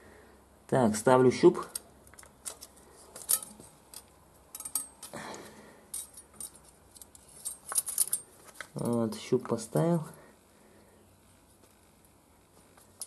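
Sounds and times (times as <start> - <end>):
metallic clicks and clinks: 1.7 - 5.2, 5.9 - 9.3.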